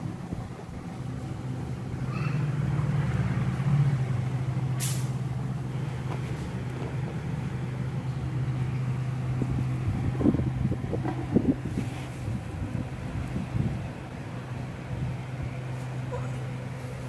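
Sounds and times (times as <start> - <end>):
low machine hum: 0.0 - 17.0
short sharp hiss: 4.8 - 5.2.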